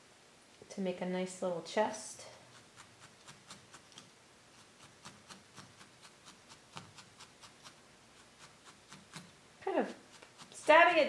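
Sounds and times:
felting needle stabbing wool: 2.4 - 11.0.

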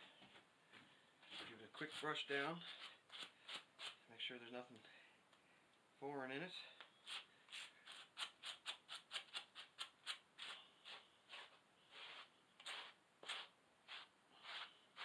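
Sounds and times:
brush scrubbing wet fur: 10.8 - 15.0.

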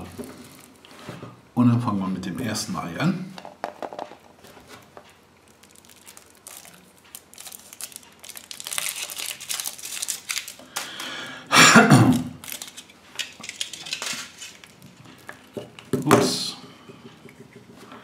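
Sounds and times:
foil wrapper crinkling: 5.4 - 11.2, 12.0 - 15.9.

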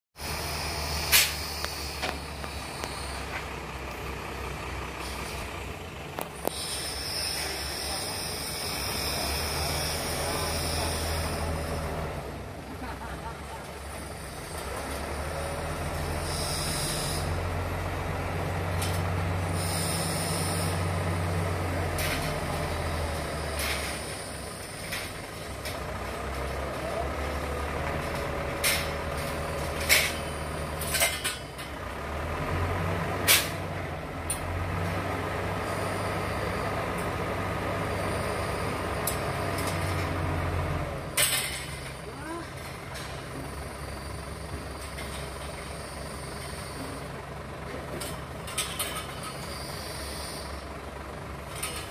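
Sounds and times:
diesel engine humming: 0.2 - 51.9
hydraulic hisses: 6.4 - 11.6.

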